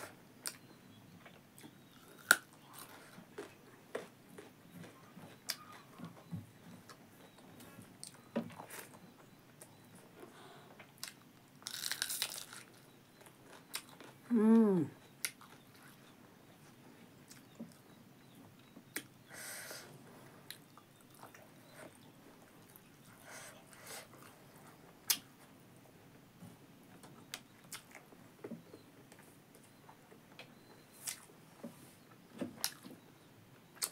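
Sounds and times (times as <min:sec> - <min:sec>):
chewing with lip smacks: 0:01.6 - 0:10.3
crunchy bite: 0:11.0 - 0:12.7
woman humming: 0:14.3 - 0:15.0.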